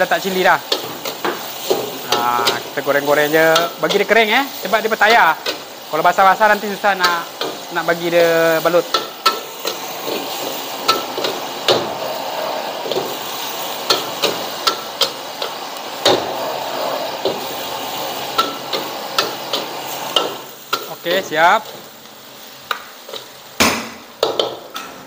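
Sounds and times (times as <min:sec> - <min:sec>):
frying hiss: 0:00.0 - 0:25.0
spatula clanking and scraping wok: 0:00.4 - 0:04.3, 0:06.8 - 0:21.0, 0:23.0 - 0:25.0.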